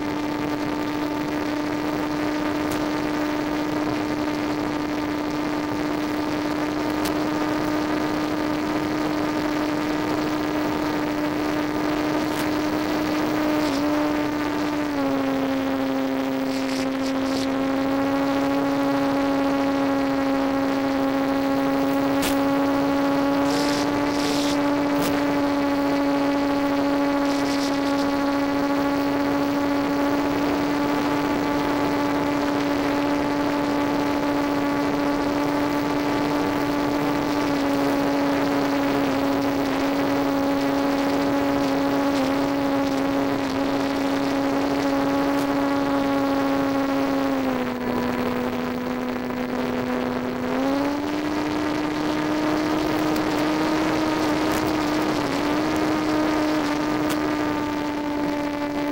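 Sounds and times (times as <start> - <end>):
electric propeller motor humming: 0.0 - 58.9
brief crackles: 12.2 - 12.7, 22.0 - 22.5, 23.4 - 25.4, 57.0 - 57.3.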